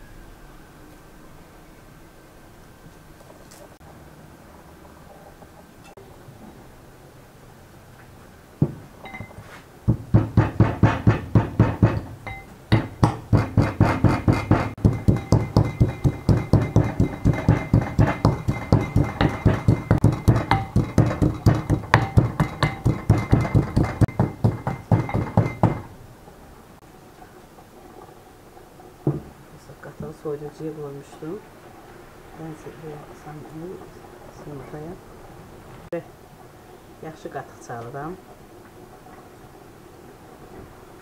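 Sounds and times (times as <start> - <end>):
pestle pounding in glass bowl: 9.9 - 25.9.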